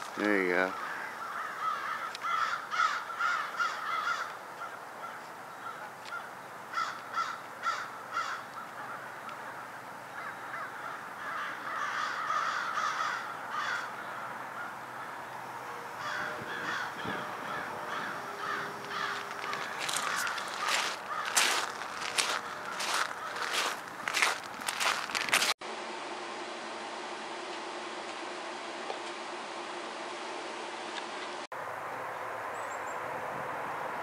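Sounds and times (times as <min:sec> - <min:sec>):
crows cawing: 0:00.2 - 0:25.4.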